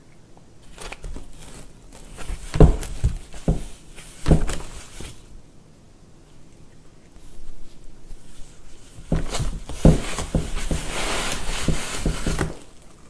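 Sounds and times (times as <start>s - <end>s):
cardboard scratchy rustle: 0.6s - 5.3s, 7.6s - 12.8s
cardboard knocking: 2.2s - 4.7s, 9.0s - 12.6s.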